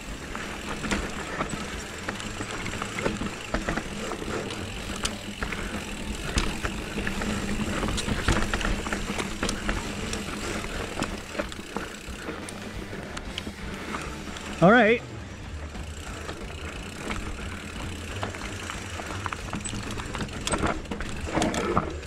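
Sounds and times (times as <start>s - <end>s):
bike clicking and rattling: 0.0s - 22.0s
tyre rumble: 0.0s - 22.0s.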